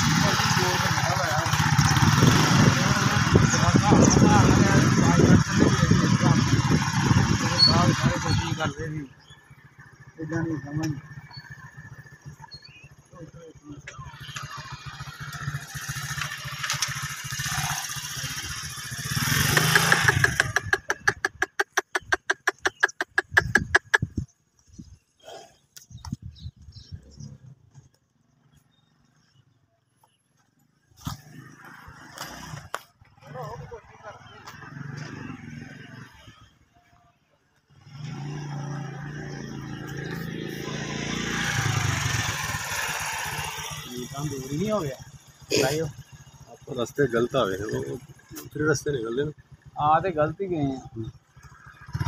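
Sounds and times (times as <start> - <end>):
small engine chugging: 0.0 - 24.3, 37.8 - 52.0.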